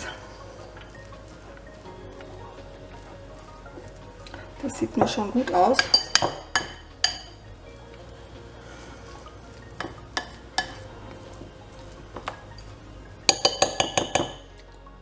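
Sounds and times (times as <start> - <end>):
spoon stirring sticky mixture: 0.0 - 15.0
spoon clinking on glass bowl: 5.8 - 7.4, 13.3 - 14.4.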